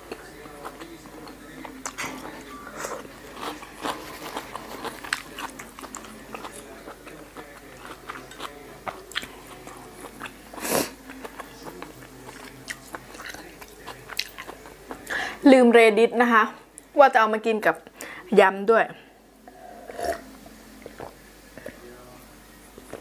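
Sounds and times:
close-miked chewing crunches: 0.0 - 15.0.

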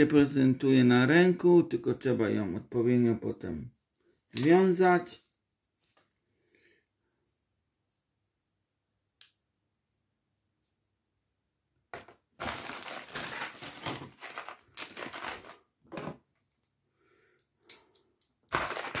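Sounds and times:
plastic packaging crinkling: 12.0 - 16.2, 18.5 - 19.0.

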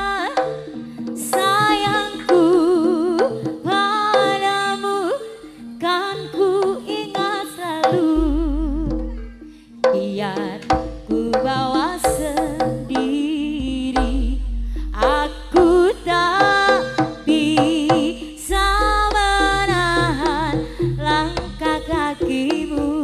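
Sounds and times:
hand drums beating: 0.0 - 4.7, 6.3 - 23.0
wavering sliding melody: 0.0 - 23.0
deep bass notes: 8.2 - 9.5, 12.1 - 23.0.

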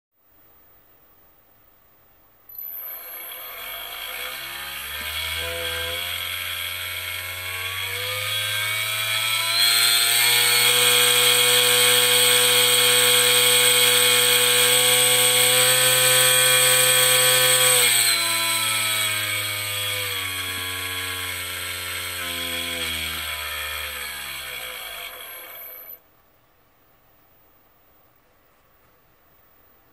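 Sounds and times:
needle cutter motor buzzing: 2.6 - 26.0.

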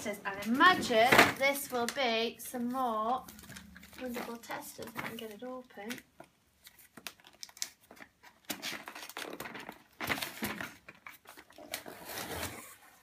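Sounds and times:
cardboard scraping and tearing: 8.4 - 13.0.

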